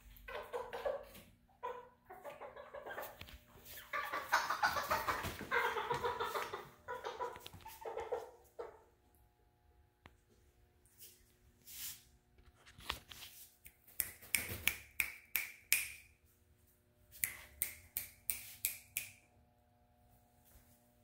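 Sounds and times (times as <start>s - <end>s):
finger snaps: 13.6s - 16.2s, 17.1s - 19.3s
faint steady hum: 15.6s - 21.0s.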